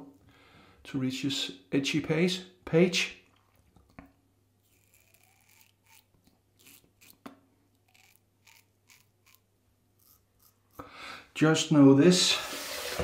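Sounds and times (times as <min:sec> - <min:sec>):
razor scraping stubble: 0:04.6 - 0:10.8.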